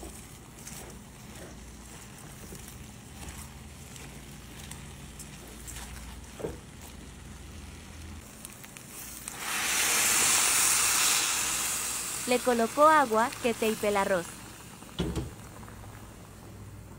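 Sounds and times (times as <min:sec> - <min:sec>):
food sizzling in pan: 0:05.7 - 0:16.7
water pouring into hot pan: 0:09.3 - 0:16.3
knock on pan: 0:15.0 - 0:15.4.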